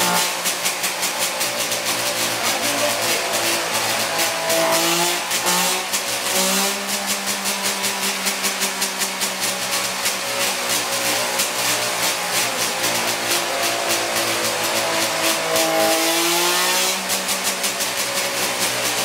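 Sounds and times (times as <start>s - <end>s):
two-stroke race engine revving: 0.0s - 19.0s.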